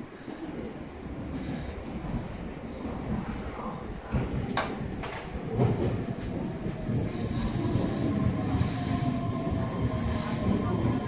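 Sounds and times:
train hiss: 0.0 - 2.1, 6.4 - 11.0
electric train whine: 6.5 - 11.0.

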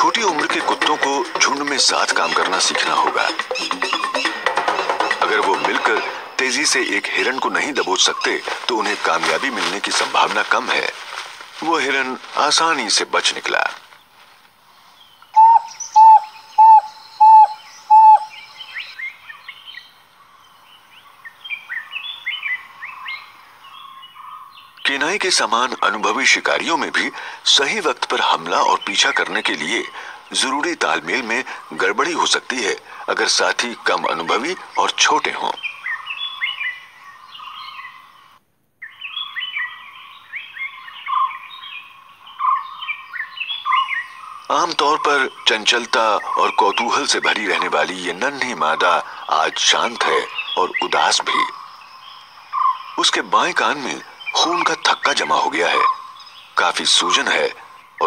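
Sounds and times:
birds chirping faintly: 0.0 - 58.0
wild dog whistling: 15.3 - 18.4.

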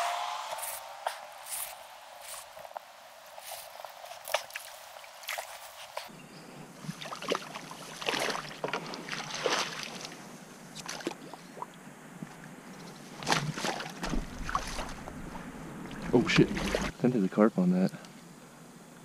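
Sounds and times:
fish splashing in shallow water: 6.8 - 11.8, 12.8 - 16.9.

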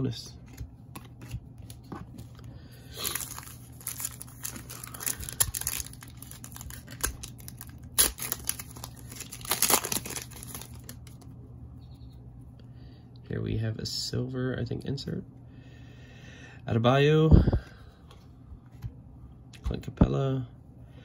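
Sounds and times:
plastic wrapper crinkling and tearing: 2.9 - 11.3.

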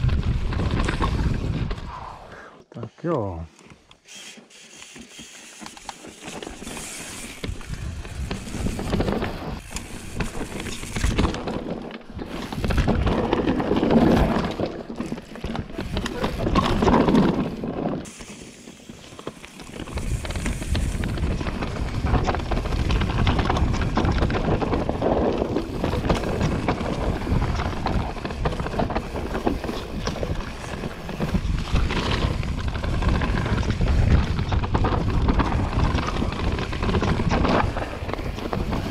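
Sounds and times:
bike rattling and clattering: 0.0 - 1.9, 4.0 - 38.9
bike tyres rolling and skidding: 0.0 - 2.2, 4.0 - 38.9
wind buffeting microphone: 0.0 - 2.3, 19.9 - 38.9.

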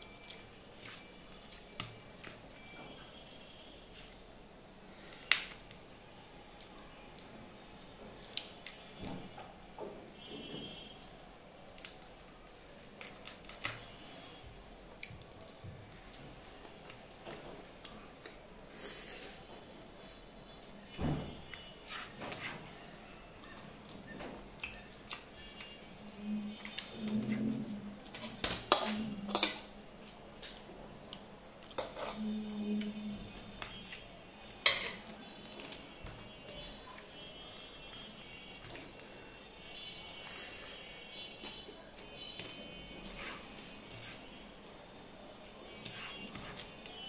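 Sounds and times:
fingers clicking in food: 24.6 - 25.7
spoon clinking against dishes: 34.6 - 35.1.

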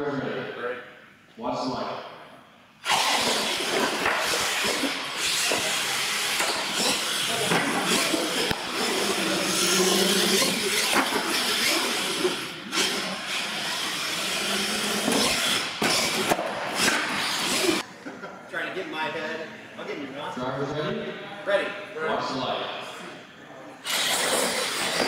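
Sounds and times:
radio-controlled trucks racing: 2.8 - 17.8, 23.8 - 25.0.

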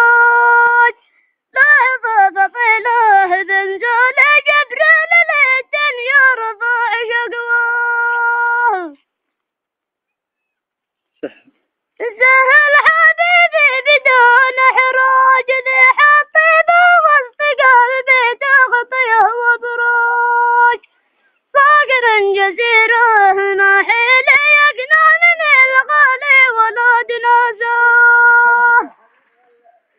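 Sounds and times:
boy singing solo: 21.8 - 29.0.

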